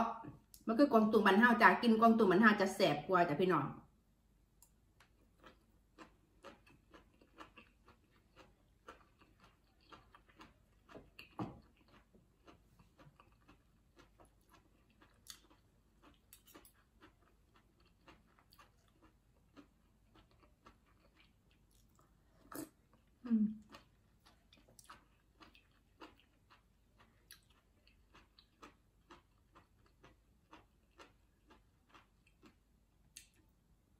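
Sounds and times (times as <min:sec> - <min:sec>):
person chewing wet mouth clicks: 0:24.6 - 0:30.2.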